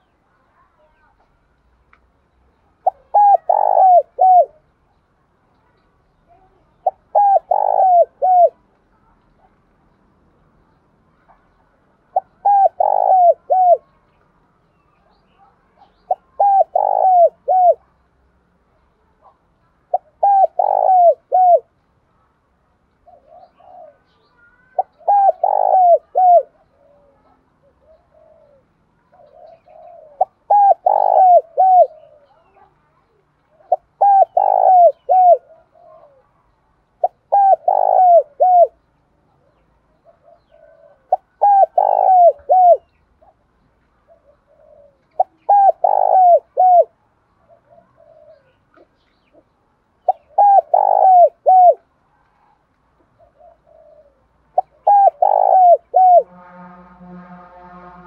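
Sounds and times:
dove cooing: 2.8 - 4.6, 6.6 - 8.6, 12.1 - 13.9, 15.4 - 17.9, 19.2 - 21.8, 23.0 - 32.7, 33.5 - 36.4, 37.0 - 38.8, 39.4 - 43.4, 44.0 - 56.4.

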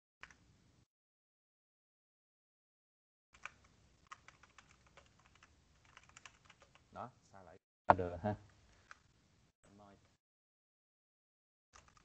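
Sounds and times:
computer keyboard typing: 3.4 - 6.9, 11.8 - 12.0.

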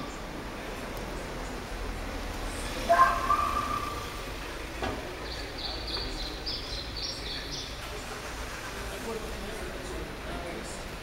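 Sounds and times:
low traffic rumble: 0.0 - 11.0
bird chirping: 5.2 - 7.8.

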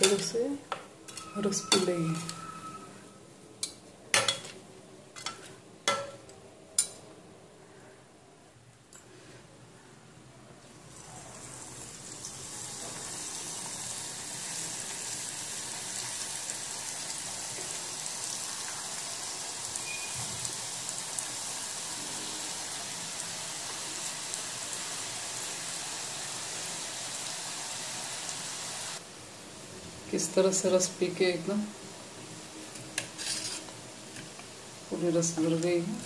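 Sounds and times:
batter sizzling in hot oil: 10.7 - 29.5, 32.1 - 36.0.

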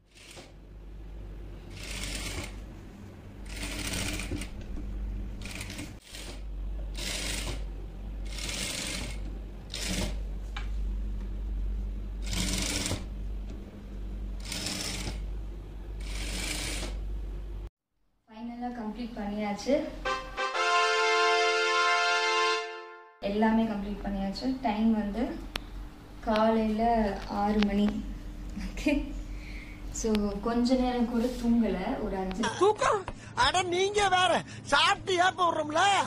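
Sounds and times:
steady low hum: 0.0 - 17.7, 23.2 - 35.7
sewing machine stitching: 0.1 - 0.5, 1.7 - 2.6, 3.4 - 4.6, 5.4 - 7.6, 8.3 - 10.2, 12.2 - 13.1, 14.4 - 15.2, 16.0 - 17.0.

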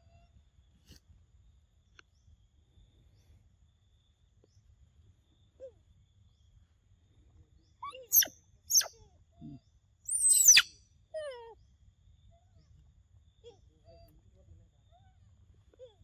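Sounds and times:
high-pitched falling animal calls: 8.0 - 8.9, 10.1 - 10.7.

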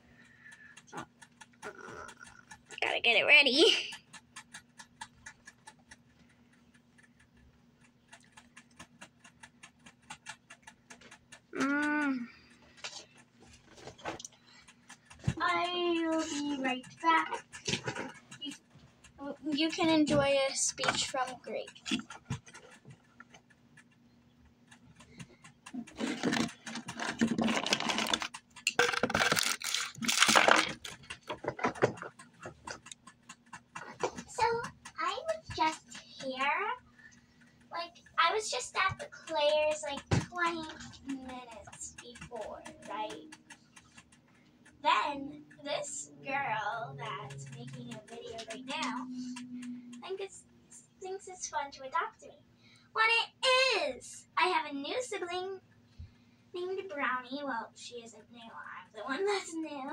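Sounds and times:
faint rapid ticking: 0.0 - 59.9
low steady hum: 10.8 - 59.9.

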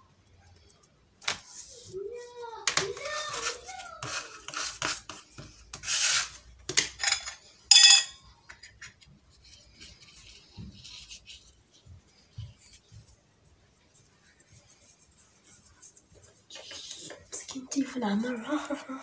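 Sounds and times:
dough scraper scraping worktop: 2.9 - 7.0.

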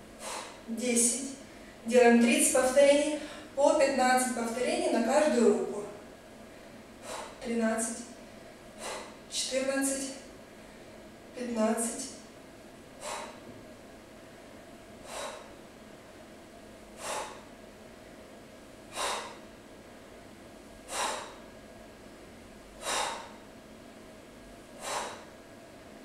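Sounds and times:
woman exhaling sharply: 13.0 - 13.4, 15.1 - 15.5, 20.9 - 21.4, 22.8 - 23.4, 24.8 - 25.3.

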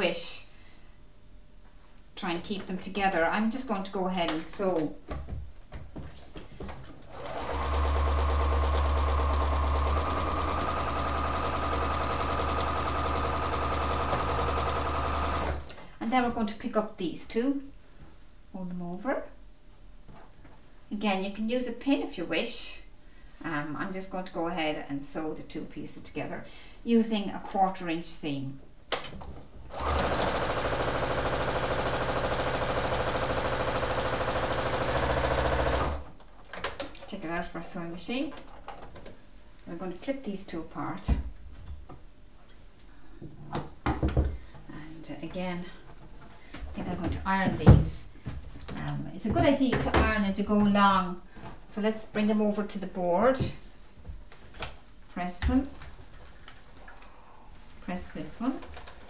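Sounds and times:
sewing machine stitching: 7.1 - 15.7, 29.7 - 36.1.

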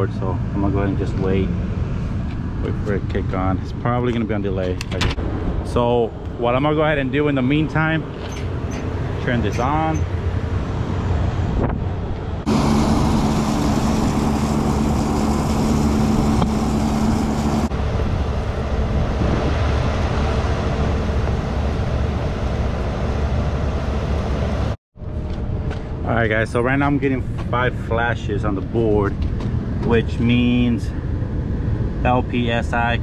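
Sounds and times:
mid-pitched hum: 0.0 - 33.0
blower humming: 11.9 - 24.8.

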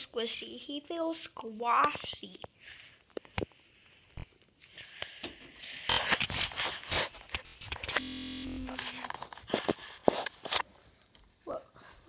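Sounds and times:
phone handling scraping and rustling: 5.9 - 8.1, 8.7 - 10.7
buzzing glitch: 7.8 - 9.1.

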